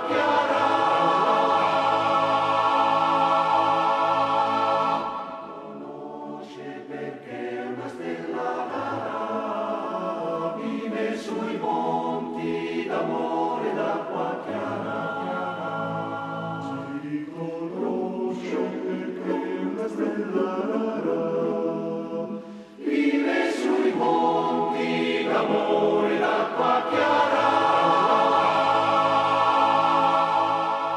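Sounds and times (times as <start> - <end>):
choir singing held chords: 0.0 - 30.9.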